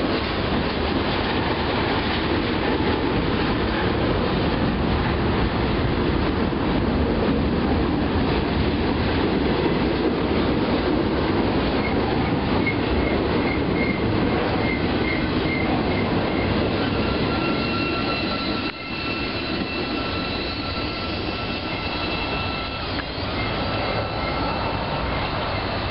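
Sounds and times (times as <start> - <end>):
freight train wheels rumbling on rail: 0.0 - 25.9
wheel squeal: 11.8 - 25.9.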